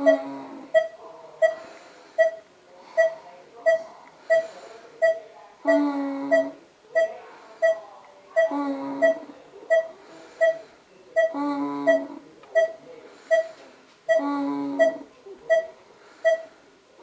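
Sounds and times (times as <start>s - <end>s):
short high electronic beeps: 14.8s - 16.5s.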